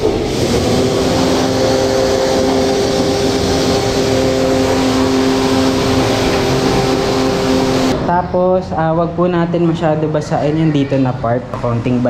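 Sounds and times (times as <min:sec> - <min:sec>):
water jet hissing: 0:00.0 - 0:08.0
pressure washer hum: 0:00.0 - 0:10.5.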